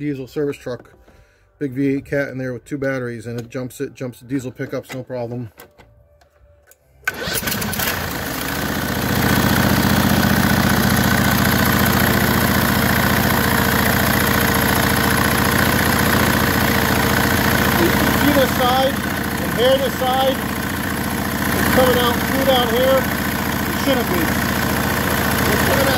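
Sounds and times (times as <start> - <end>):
engine cranking and starting: 7.0 - 25.9
engine running steadily: 7.1 - 25.9.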